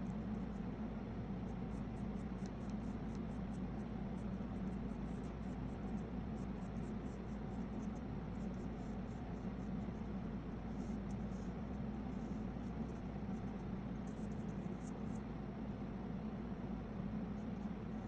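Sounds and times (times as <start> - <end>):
steady low hum: 0.0 - 18.0
paintbrush dabbing on paper: 1.4 - 15.3.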